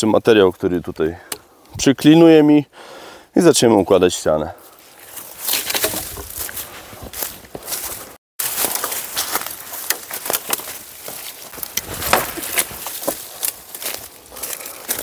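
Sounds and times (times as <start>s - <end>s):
dry leaves crackling underfoot: 4.6s - 15.0s.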